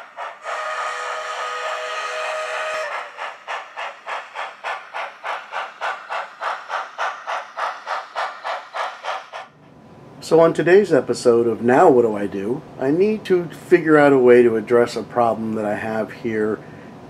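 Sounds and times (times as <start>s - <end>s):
steam locomotive exhaust chuffing: 0.0s - 9.6s
chime steam whistle: 0.3s - 3.2s.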